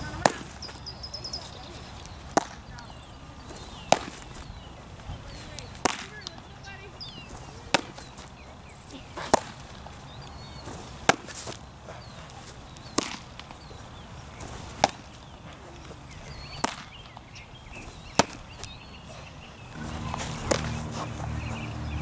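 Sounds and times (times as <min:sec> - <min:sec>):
baseballs smacking into leather mitt: 0:00.0 - 0:00.8, 0:01.4 - 0:06.5, 0:07.3 - 0:08.4, 0:09.2 - 0:11.6, 0:12.2 - 0:13.8, 0:14.4 - 0:18.8, 0:19.8 - 0:21.7.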